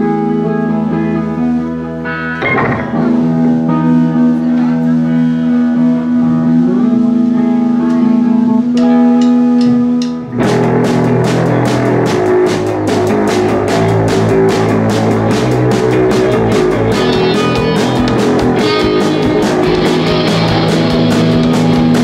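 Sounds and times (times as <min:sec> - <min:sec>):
electric guitar held notes: 0:00.0 - 0:22.0
rock band playing: 0:00.0 - 0:22.0
drums striking: 0:02.4 - 0:03.6, 0:09.2 - 0:22.0.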